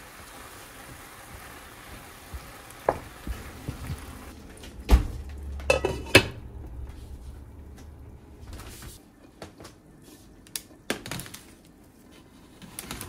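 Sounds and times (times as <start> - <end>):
vegetables sizzling in a frying pan: 0.0 - 4.3
wooden spatula scraping pan: 5.6 - 7.8
glass lid clinking on pan: 5.7 - 6.4.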